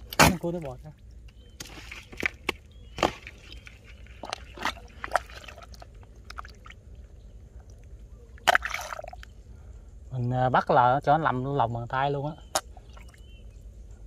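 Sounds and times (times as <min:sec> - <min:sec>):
wet mud squelches: 0:00.0 - 0:09.4.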